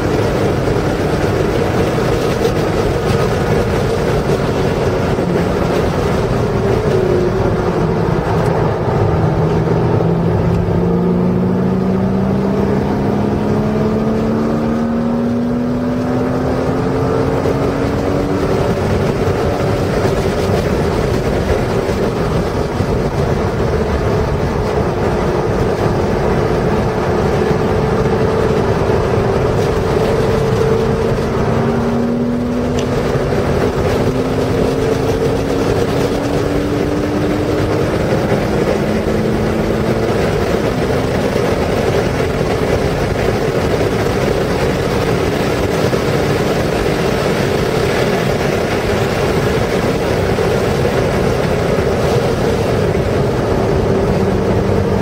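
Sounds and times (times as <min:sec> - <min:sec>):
car engine under throttle: 0:00.0 - 0:55.0
road and wind noise: 0:00.0 - 0:55.0.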